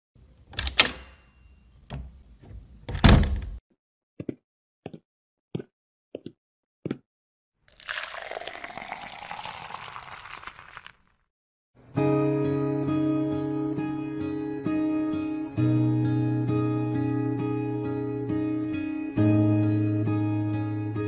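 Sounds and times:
liquid pouring into a cup: 0:07.7 - 0:11.2.

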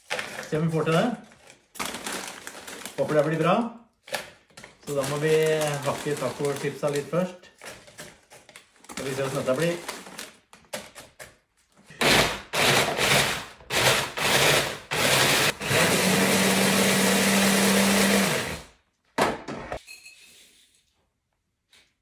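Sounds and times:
stick blender motor chopping: 0:12.0 - 0:18.7.

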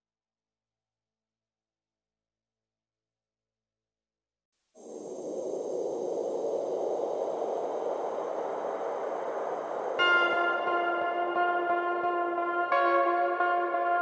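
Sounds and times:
hissing synth swell: 0:04.8 - 0:13.4.

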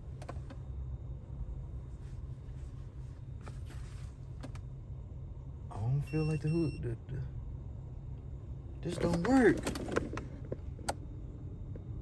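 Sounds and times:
faint rustles: 0:01.9 - 0:04.4
car cabin rumble: 0:08.2 - 0:12.0.

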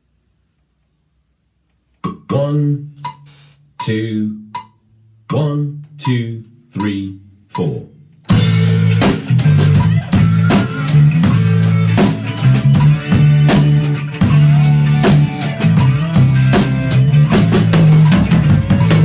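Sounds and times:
drum kit playing: 0:02.9 - 0:04.8, 0:05.9 - 0:19.0
rock guitar and bass: 0:08.3 - 0:19.0.

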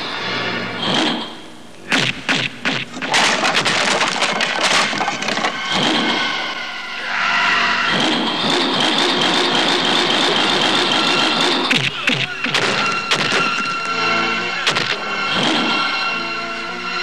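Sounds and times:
sharp cracks and thumps: 0:01.9 - 0:06.2, 0:11.7 - 0:13.7
rapid crackling: 0:02.5 - 0:06.1.

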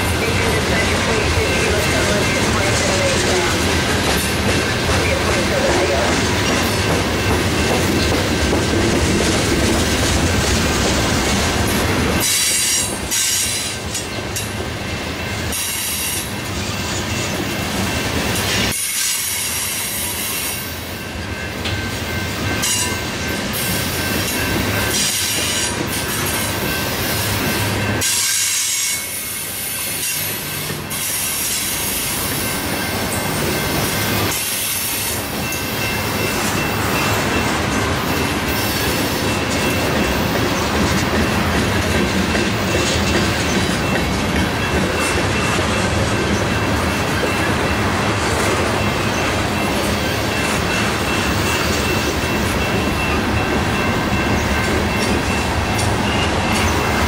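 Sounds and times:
freight train cars rolling: 0:00.0 - 0:57.0
wheels squealing on rails: 0:00.0 - 0:57.0.

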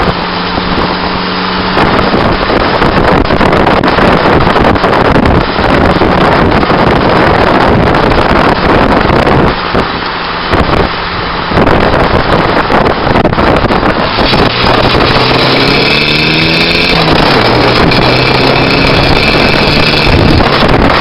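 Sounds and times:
tyre and road noise: 0:00.0 - 0:21.0
wind buffeting microphone: 0:00.0 - 0:21.0.

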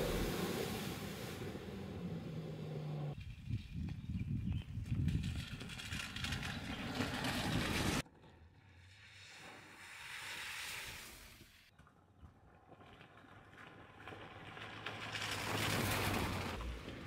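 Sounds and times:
vehicle driving rushing noise: 0:00.0 - 0:03.2.

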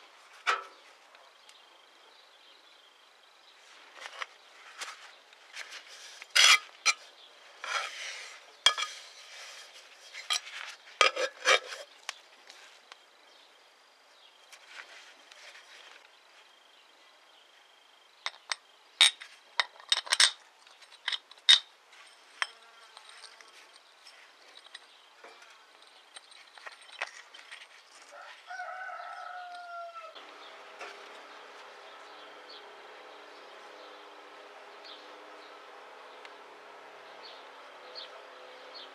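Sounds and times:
steel parts clinking on metal table: 0:08.7 - 0:09.0, 0:18.3 - 0:21.7.

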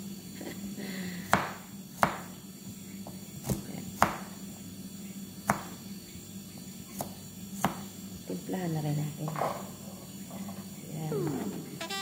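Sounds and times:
steady low hum: 0:10.1 - 0:12.0.

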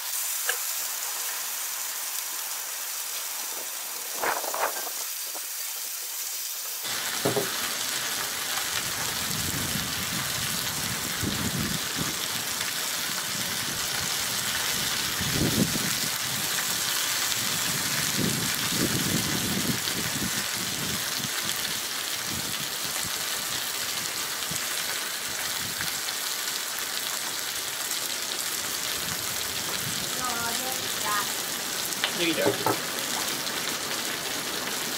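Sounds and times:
chicken sizzling on a griddle: 0:00.0 - 0:34.9
soft knocks: 0:07.2 - 0:07.6, 0:32.4 - 0:32.8.

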